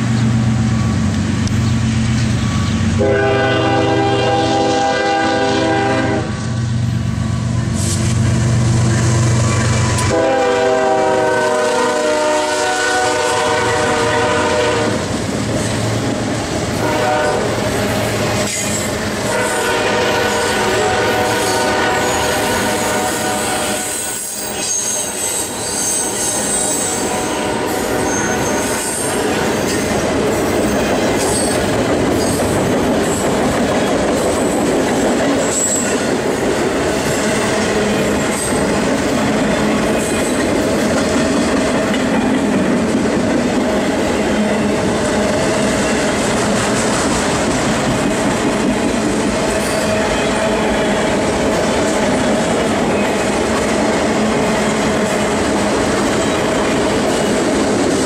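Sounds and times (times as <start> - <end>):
train wheels rumbling on rails: 0.0 - 58.0
train horn: 3.0 - 6.4, 9.8 - 15.1, 16.8 - 29.8, 49.5 - 51.4
wheel squeals: 23.9 - 27.0, 28.0 - 29.8.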